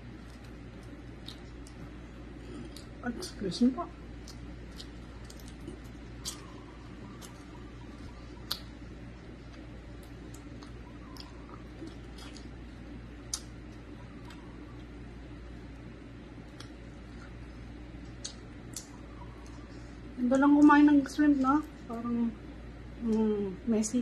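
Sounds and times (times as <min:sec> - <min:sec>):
chewing smacks: 0:00.0 - 0:03.4, 0:04.0 - 0:15.0, 0:16.4 - 0:19.9
fingers peeling shrimp: 0:04.1 - 0:15.0.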